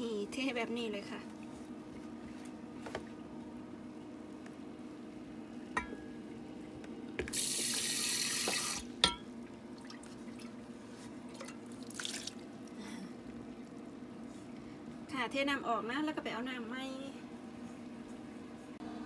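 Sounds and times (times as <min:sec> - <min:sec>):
steady low hum: 0:00.0 - 0:07.3, 0:08.8 - 0:19.0
water pouring into a steel sink: 0:11.4 - 0:12.4.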